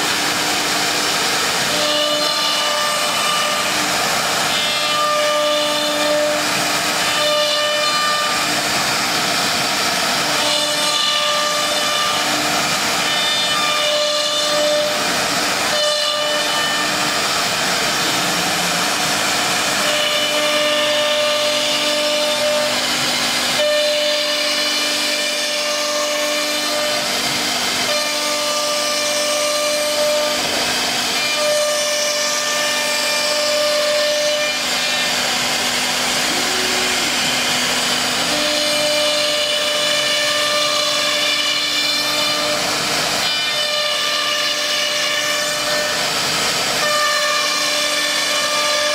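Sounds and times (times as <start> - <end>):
hiss of cutting and extraction: 0.0 - 48.9
router spindle whine: 0.0 - 48.9.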